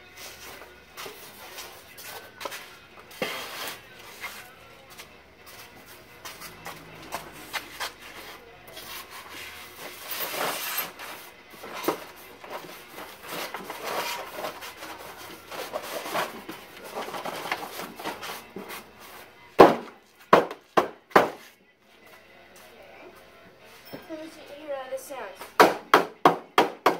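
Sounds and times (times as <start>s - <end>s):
rummaging through gear: 0.3s - 18.6s.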